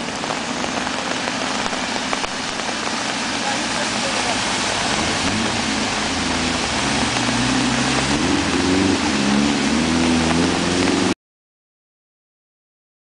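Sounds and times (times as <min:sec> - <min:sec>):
car engine running: 0:00.0 - 0:11.2
water rushing and splashing: 0:00.0 - 0:11.2.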